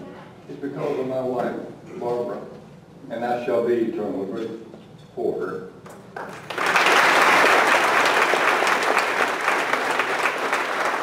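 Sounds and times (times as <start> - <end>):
audience applauding: 6.2 - 11.0.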